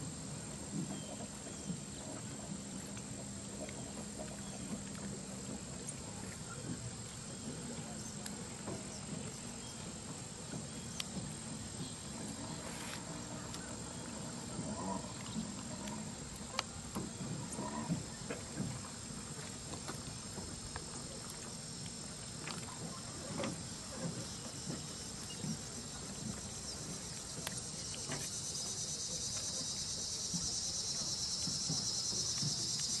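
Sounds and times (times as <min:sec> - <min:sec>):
insects chirring: 0:00.0 - 0:33.0
faint knocks and ticks: 0:00.3 - 0:33.0.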